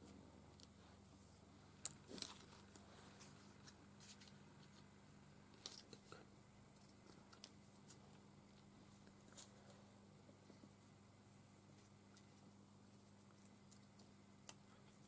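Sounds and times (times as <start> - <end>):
paper rustling: 2.1 - 4.9.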